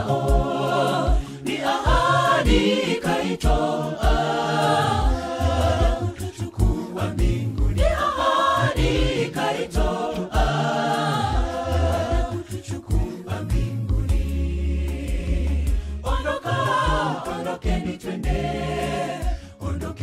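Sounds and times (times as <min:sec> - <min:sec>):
steady low beat: 0:00.0 - 0:19.5
vocal group singing in harmony: 0:00.0 - 0:20.0.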